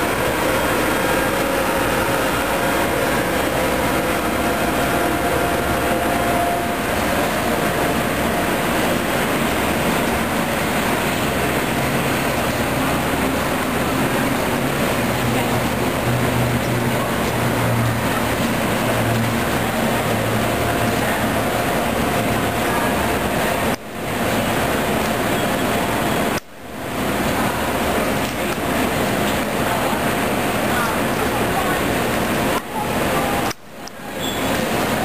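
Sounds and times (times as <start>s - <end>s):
locomotive engines idling: 0.0s - 35.0s.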